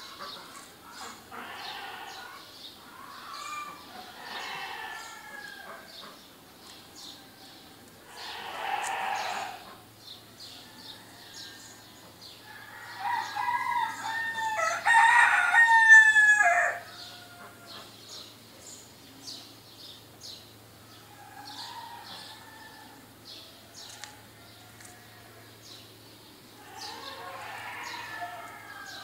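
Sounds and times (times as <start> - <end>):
small birds chirping: 0.0 - 14.2, 16.9 - 29.0
rooster crowing: 3.3 - 5.9, 7.2 - 9.6, 10.6 - 17.8, 21.1 - 23.0, 23.8 - 25.4, 26.6 - 29.0.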